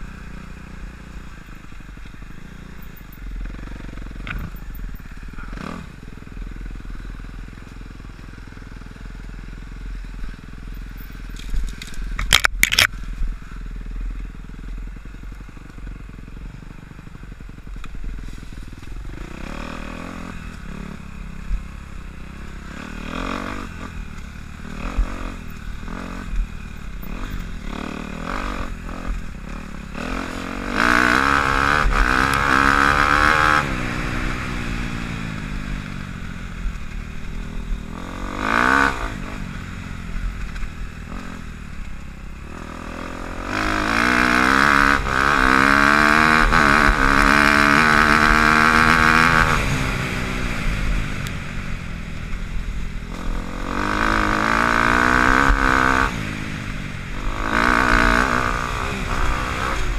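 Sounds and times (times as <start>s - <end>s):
dirt bike engine revving: 2.5s - 6.9s, 19.0s - 35.8s, 36.7s - 41.5s, 42.4s - 59.9s.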